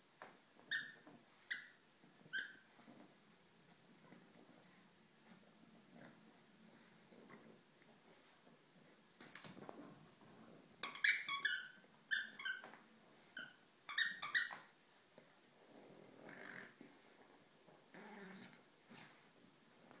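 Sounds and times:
dog toy squeaking: 0:00.7 - 0:02.6, 0:10.8 - 0:12.7, 0:13.4 - 0:14.6
puppy low rumble: 0:15.5 - 0:19.1.

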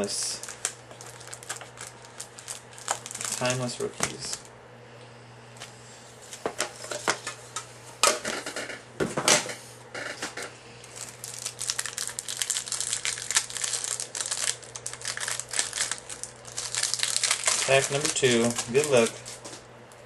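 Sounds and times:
wrapper crinkling as torn open: 0:00.1 - 0:04.5, 0:10.8 - 0:19.5.

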